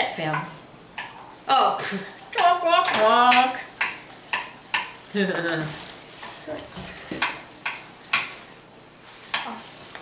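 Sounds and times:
knife chopping on plastic board: 6.8 - 8.4.

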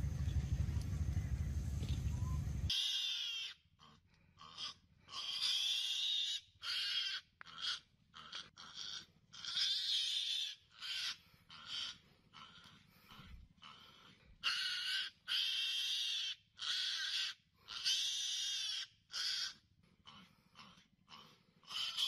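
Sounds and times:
low rumble: 0.0 - 2.7
high wheezy animal calls: 2.2 - 22.0.

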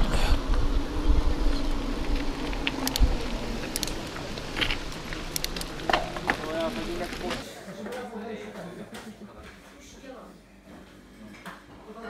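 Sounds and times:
bike tyre rumble: 0.0 - 7.4
steady hum: 0.0 - 7.4
wind: 0.0 - 7.5
bike clicks and rattles: 1.3 - 7.4.

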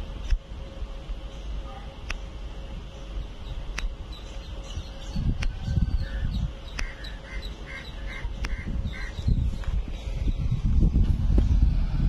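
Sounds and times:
birds calling: 1.2 - 10.8
low rumble: 2.4 - 12.0.

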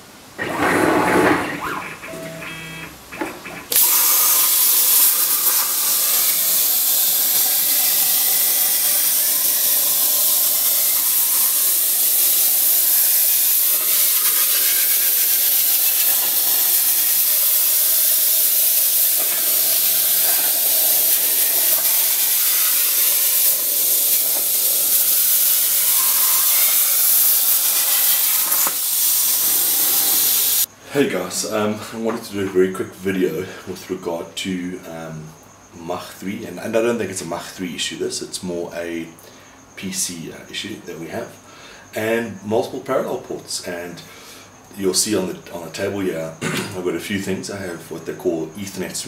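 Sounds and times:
plasma cutter hissing: 3.2 - 30.7.

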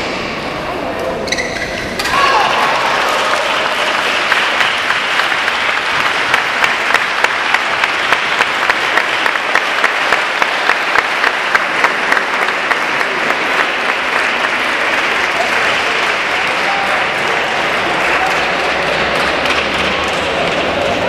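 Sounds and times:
spectators applauding: 2.2 - 21.0.

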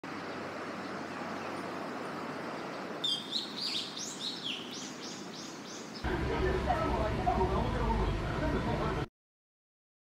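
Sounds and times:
steady background noise: 0.0 - 9.1
bird chirping: 0.2 - 6.1.

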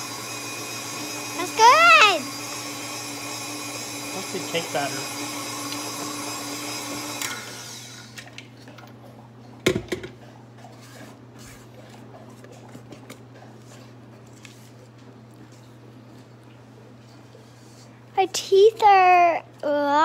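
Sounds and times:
stand mixer running: 0.0 - 8.3.

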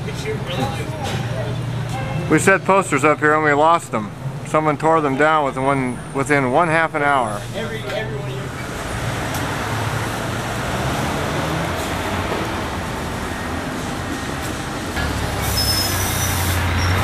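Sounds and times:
heavy vehicle low hum: 0.0 - 17.0
traffic rumble: 0.0 - 17.0.

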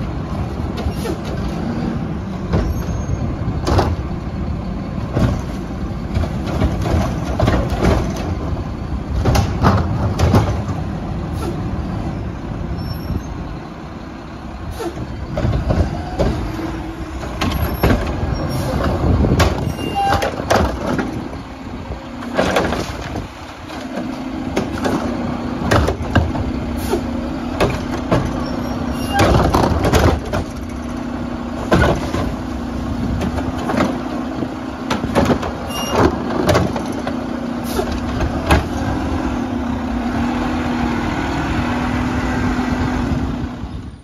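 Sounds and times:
garbage truck running: 0.0 - 44.0
clanks and knocks: 5.1 - 8.5, 9.2 - 10.9, 15.0 - 21.4, 22.2 - 26.6, 27.5 - 39.0.

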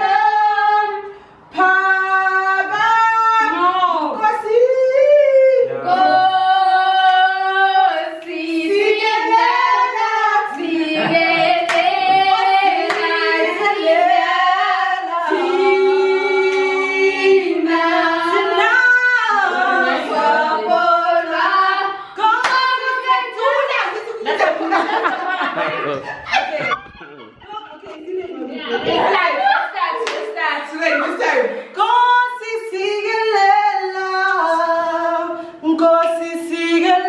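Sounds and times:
women singing in harmony: 0.0 - 26.0, 27.6 - 37.0
hand claps: 11.7 - 11.9, 22.4 - 22.6.

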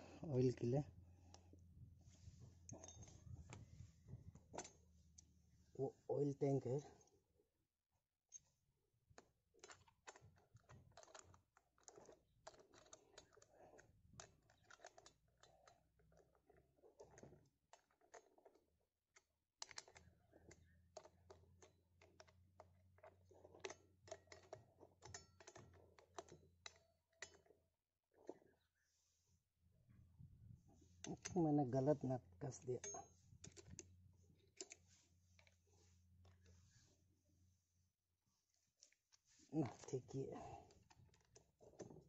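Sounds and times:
small metal parts clicking: 9.6 - 27.6.

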